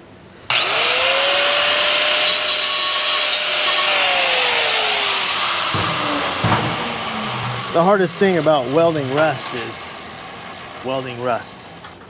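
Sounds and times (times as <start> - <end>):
angle grinder grinding steel: 0.5 - 11.9
grinder winding down: 0.5 - 11.9
knock: 5.7 - 7.7.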